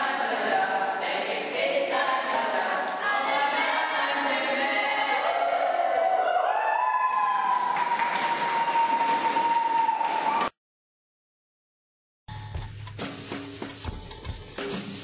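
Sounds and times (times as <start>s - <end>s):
group singing unaccompanied: 0.0s - 5.6s.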